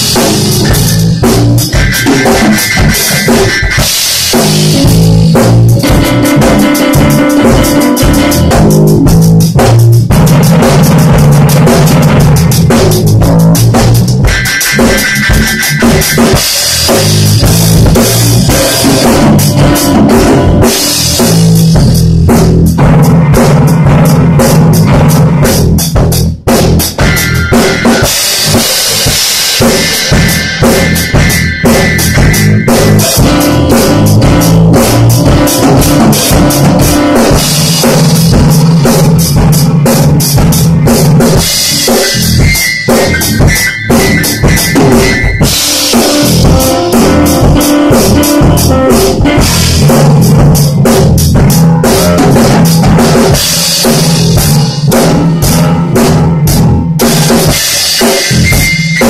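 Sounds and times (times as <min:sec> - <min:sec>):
keyboard chords: 0:00.0 - 0:25.3, 0:27.0 - 0:59.0
drum kit: 0:00.0 - 0:59.0
electric bass: 0:00.0 - 0:59.0.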